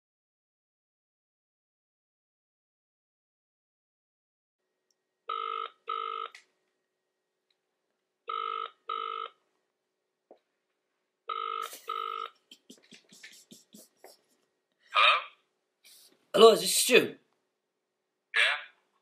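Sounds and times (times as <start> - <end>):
telephone ringing: 5.3 - 6.3, 8.3 - 9.4, 11.3 - 12.4.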